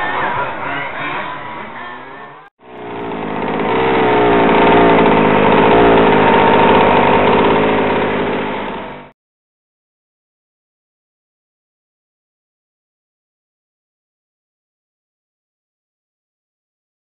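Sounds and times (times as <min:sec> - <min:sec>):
small petrol engine revving: 0:00.0 - 0:09.2.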